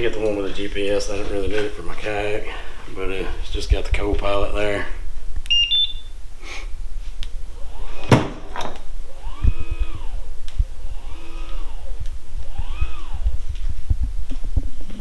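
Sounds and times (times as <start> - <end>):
high electronic beeps: 5.5 - 6.1
electric motor whirring: 9.0 - 13.8.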